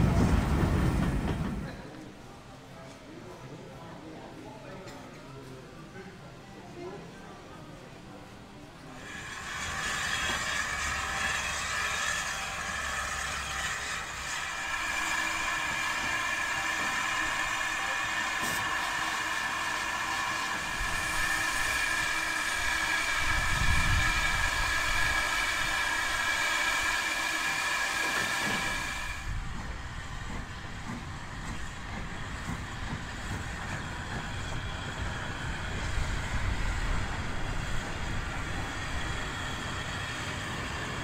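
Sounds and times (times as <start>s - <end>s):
steam locomotive hissing: 8.8s - 41.0s.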